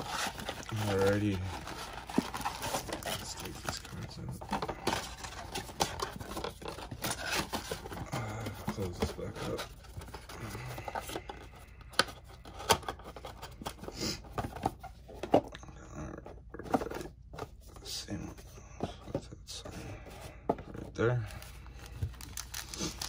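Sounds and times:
plastic wrap crinkling: 21.8s - 23.0s.

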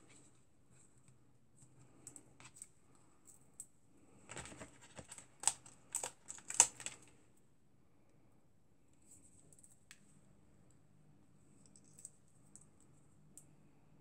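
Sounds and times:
paper rustling: 4.3s - 7.0s.

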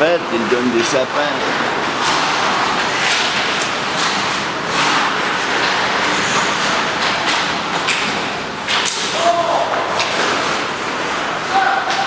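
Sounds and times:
hockey sticks and pucks clacking: 0.3s - 12.0s
skates scraping on ice: 0.4s - 12.0s.

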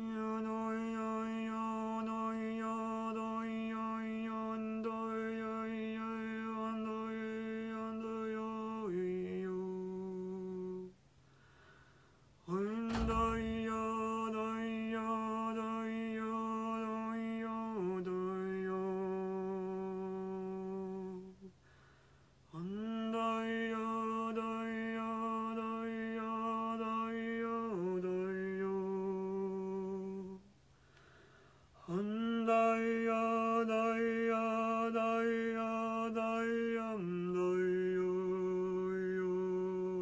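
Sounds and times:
sharp knock: 12.9s - 14.2s.

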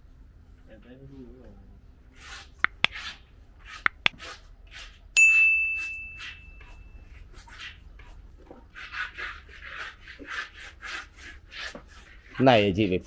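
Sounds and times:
scratchy strokes: 2.1s - 5.1s, 5.7s - 13.0s
sharp clicks: 2.6s - 3.0s
bell-like metallic ding: 5.2s - 6.6s.

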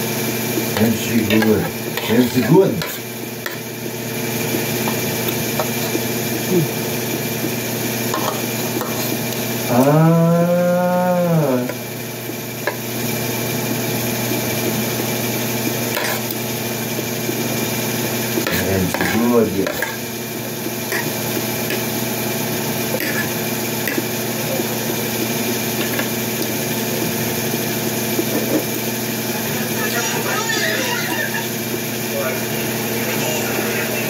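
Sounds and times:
steady background hum: 0.0s - 34.0s.

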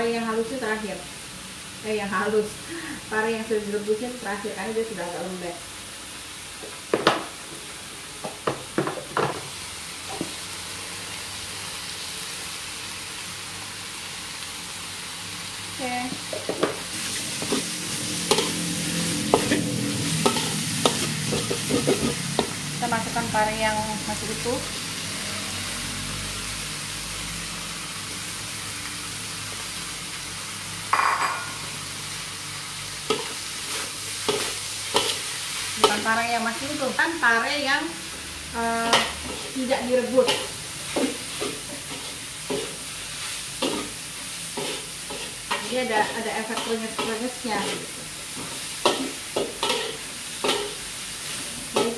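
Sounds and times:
food sizzling in a wok: 0.0s - 51.9s
metal spatula scraping wok: 16.9s - 22.6s, 33.0s - 36.3s, 38.8s - 51.9s.

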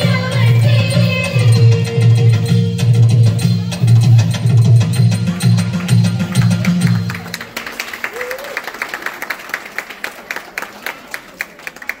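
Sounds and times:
audience applause: 6.2s - 12.0s.

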